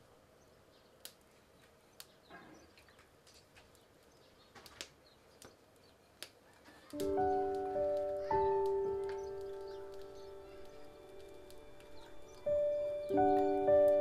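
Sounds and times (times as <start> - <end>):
music with ringing notes: 7.0 - 14.0.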